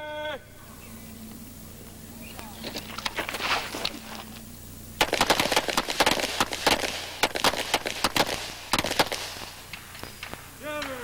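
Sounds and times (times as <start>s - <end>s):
pistol shots: 4.9s - 11.0s.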